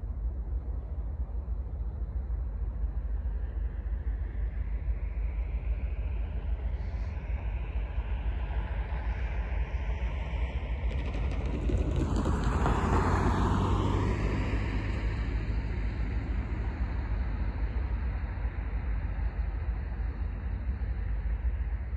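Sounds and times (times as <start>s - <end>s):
steady low rumble: 0.0s - 21.9s
car passing: 10.8s - 20.6s.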